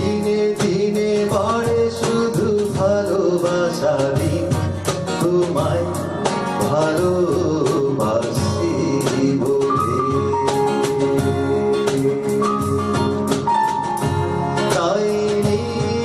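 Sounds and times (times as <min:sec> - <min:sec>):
song with singer and beat: 0:00.0 - 0:16.0.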